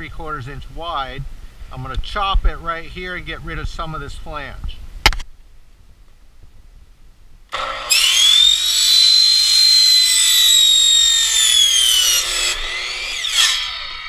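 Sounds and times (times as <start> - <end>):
electric chop saw whining: 7.5 - 14.0.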